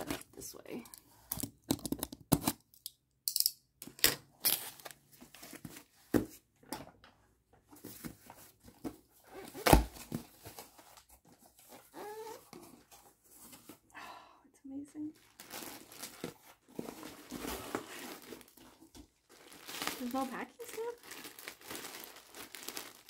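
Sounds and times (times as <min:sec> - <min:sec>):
packaging ripping and crinkling: 0:15.2 - 0:23.0.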